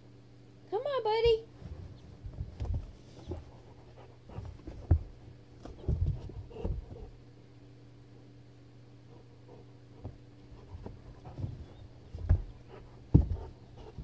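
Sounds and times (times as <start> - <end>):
dog thudding and scuffing on floor: 1.6 - 3.7, 4.3 - 7.2, 10.0 - 14.0.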